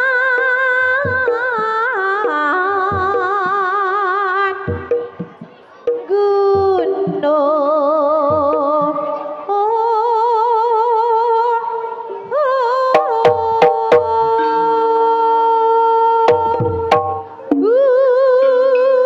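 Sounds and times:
woman singing long notes: 0.0 - 5.2, 6.1 - 19.0
hand drum strokes: 12.9 - 14.4, 16.3 - 17.8.

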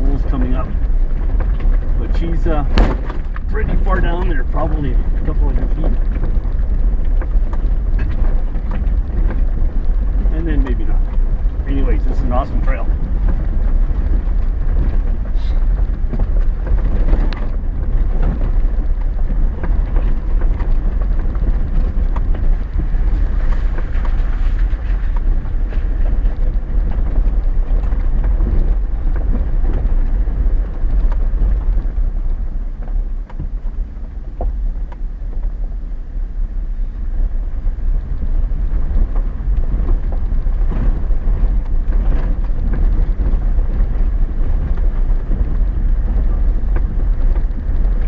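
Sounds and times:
knocks and rattles from bumps: 0.0 - 35.5
low rumble of engine and tyres: 0.0 - 48.0.

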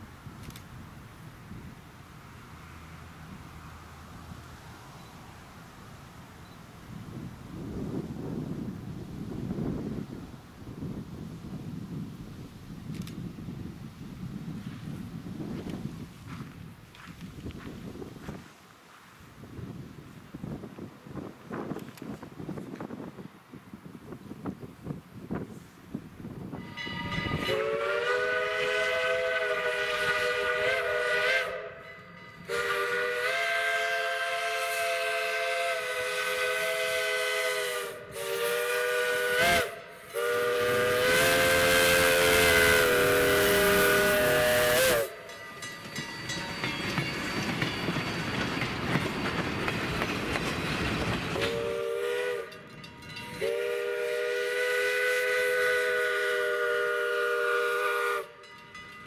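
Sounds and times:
steam hiss: 24.0 - 58.4
steam locomotive whistle: 26.5 - 45.4, 51.4 - 58.5.

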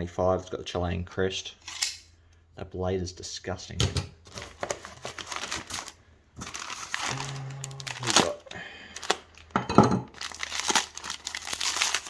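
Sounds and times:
packing paper crinkling: 4.2 - 12.0.

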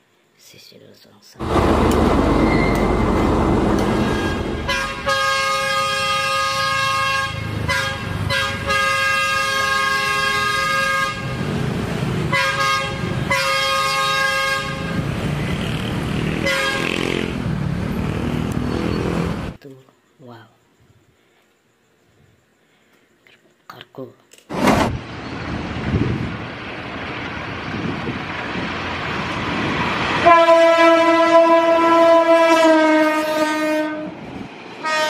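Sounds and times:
diesel locomotive horn blasts: 1.4 - 11.4, 12.3 - 15.1, 16.3 - 17.3, 30.2 - 34.2, 34.8 - 35.0
locomotive engine rumble: 1.4 - 19.5.

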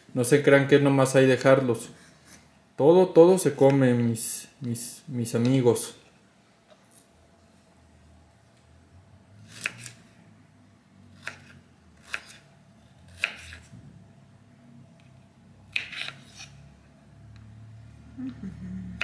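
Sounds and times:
knife chopping on wooden board: 9.5 - 10.0, 11.2 - 12.4, 13.1 - 13.8, 15.7 - 16.5.

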